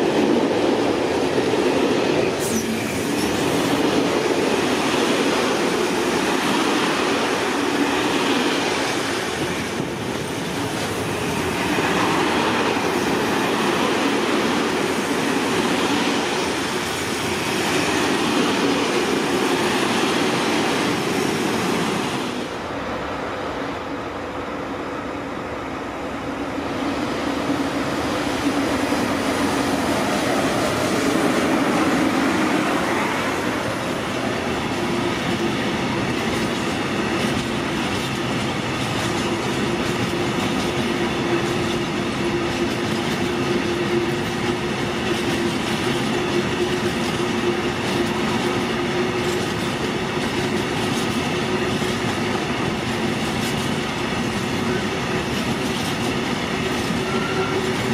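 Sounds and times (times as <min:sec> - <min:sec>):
freight train passing: 0:00.0 - 0:57.9
wheels clickety-clack: 0:34.1 - 0:57.9.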